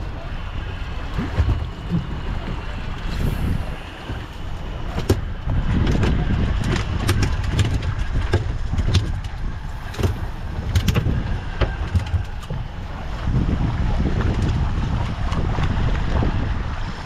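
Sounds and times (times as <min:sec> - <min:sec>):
outboard motor rumble: 0:00.0 - 0:17.0
sharp clicks and knocks: 0:05.0 - 0:12.6.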